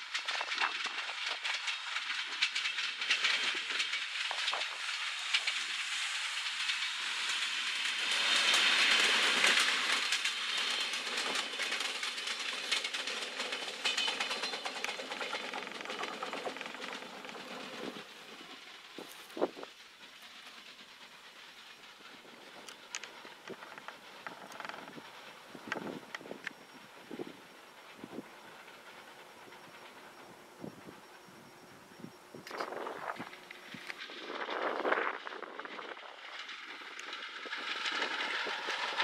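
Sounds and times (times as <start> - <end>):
train wheels rumbling on rails: 0.0 - 39.0
clicks over rail joints: 8.5 - 18.1, 22.4 - 26.6.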